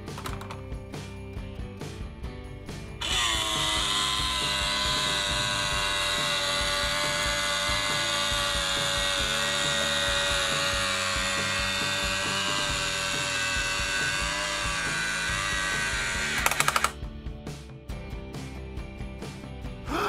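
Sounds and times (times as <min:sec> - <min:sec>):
small electric motor whining: 0:03.0 - 0:17.0.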